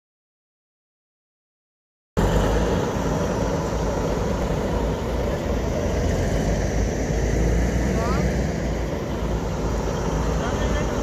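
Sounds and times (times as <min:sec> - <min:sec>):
heavy machinery engines idling: 0:02.2 - 0:11.0.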